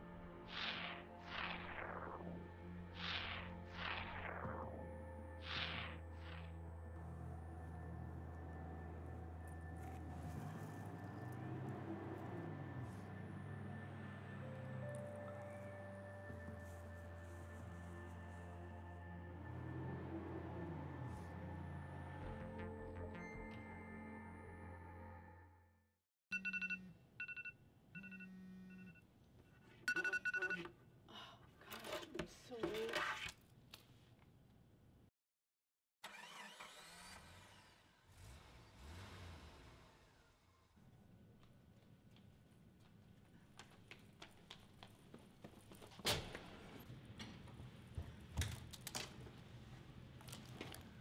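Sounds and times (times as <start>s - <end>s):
music: 0.0s - 26.0s
smartphone trilling ringtone: 26.3s - 29.0s, 29.9s - 30.7s.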